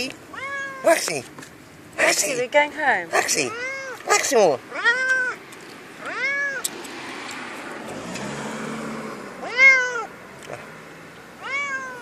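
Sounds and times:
cat meowing: 0.0 - 1.2, 3.2 - 5.4, 6.0 - 6.7, 9.4 - 10.1, 11.4 - 12.0.

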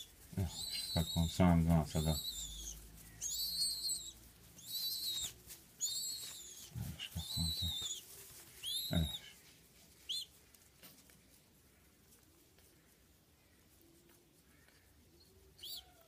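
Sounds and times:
squab squeaking begging calls: 0.0 - 8.0, 8.6 - 9.3, 15.6 - 16.0.

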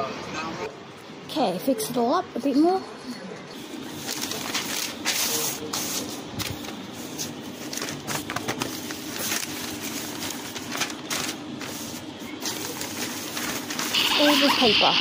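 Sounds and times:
newspaper rustling and crinkling: 3.9 - 14.2.

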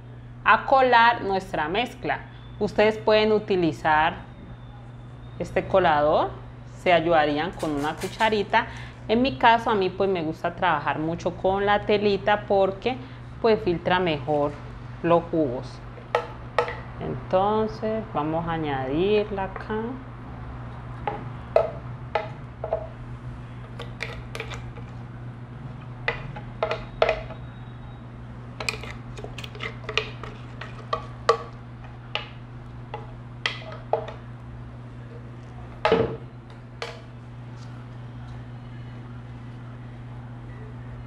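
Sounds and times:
steady low hum: 0.0 - 41.0
blender jar and utensils knocking: 26.1 - 27.4.

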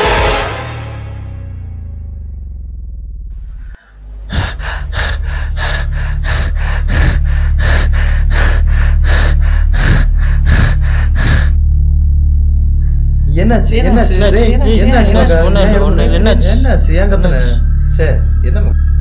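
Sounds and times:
background music drone: 0.0 - 19.0
man panting: 3.8 - 11.6.

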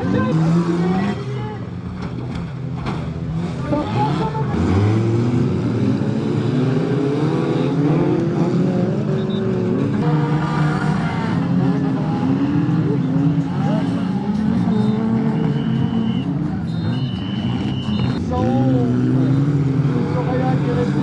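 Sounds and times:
race car engines revving: 0.0 - 21.0.

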